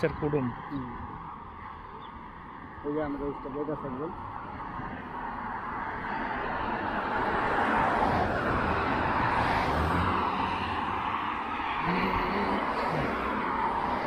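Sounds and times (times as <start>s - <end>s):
cars going by: 0.0s - 14.0s.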